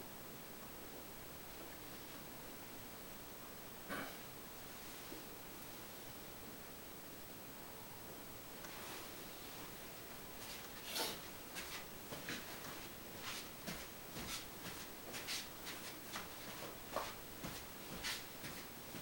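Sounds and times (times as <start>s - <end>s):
faint room hiss: 0.0s - 19.0s
footsteps on carpet: 10.4s - 19.0s.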